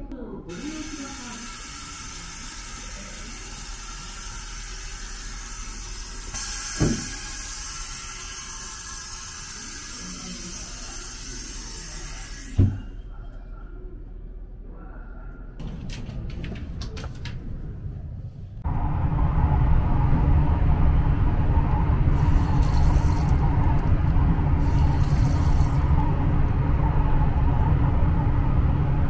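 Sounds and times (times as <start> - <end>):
compressed air hissing: 0.5 - 12.8.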